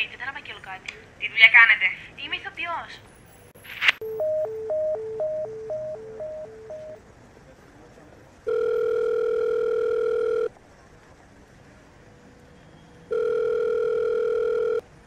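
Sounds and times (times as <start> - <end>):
telephone ringback tone: 4.0 - 7.0, 8.5 - 10.5, 13.1 - 14.9.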